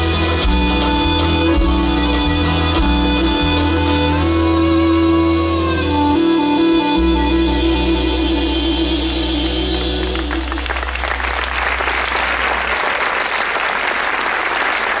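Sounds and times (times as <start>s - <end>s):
folk band holding a chord: 0.0s - 12.9s
audience applause: 10.0s - 15.0s.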